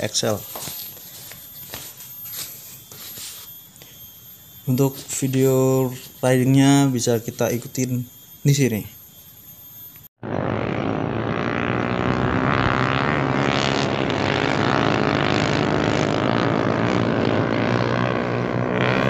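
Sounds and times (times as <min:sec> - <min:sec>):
motorcycle engine running: 0:10.2 - 0:19.0.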